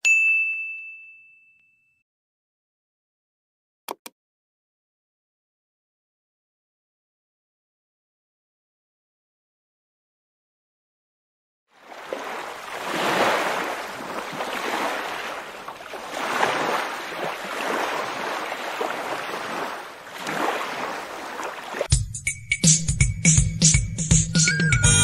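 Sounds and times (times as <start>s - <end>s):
ocean waves washing in: 11.8s - 21.9s
music: 21.9s - 25.0s.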